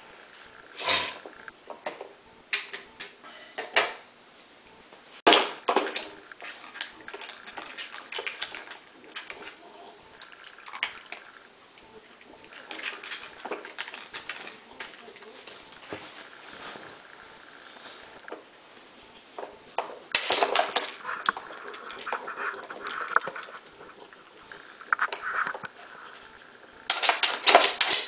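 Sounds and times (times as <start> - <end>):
plastic toy clicking and knocking: 26.9 - 28.0.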